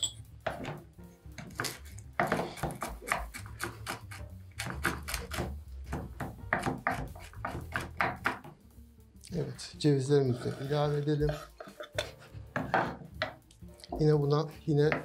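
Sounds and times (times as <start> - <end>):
knife chopping on cutting board: 1.4 - 8.6, 11.3 - 13.4.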